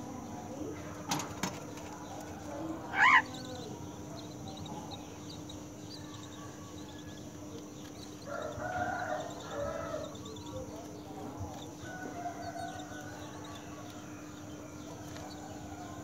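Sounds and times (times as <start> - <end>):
harsh bird calls: 1.6 - 16.0
myna calling: 2.8 - 3.7.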